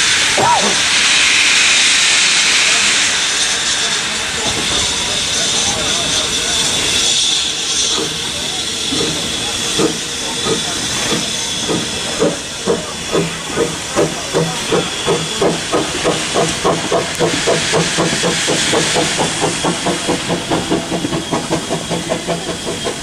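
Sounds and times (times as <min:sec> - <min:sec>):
hiss of escaping steam: 0:00.0 - 0:23.0
steam locomotive exhaust beats: 0:00.0 - 0:23.0.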